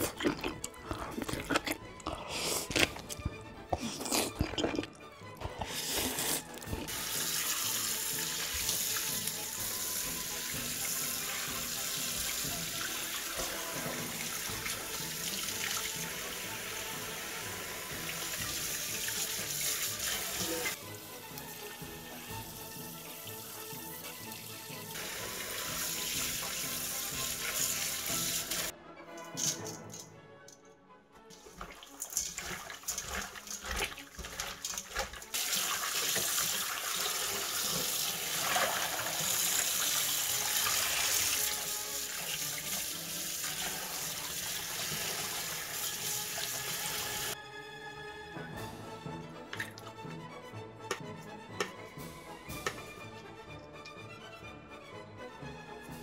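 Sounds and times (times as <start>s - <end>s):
tap water running into sink: 6.8s - 28.7s, 31.3s - 47.4s, 49.5s - 49.9s, 50.9s - 54.1s.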